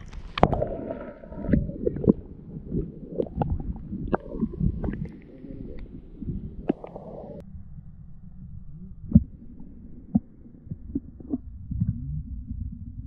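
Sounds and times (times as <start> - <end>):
water gurgling and sloshing: 0.0 - 13.0.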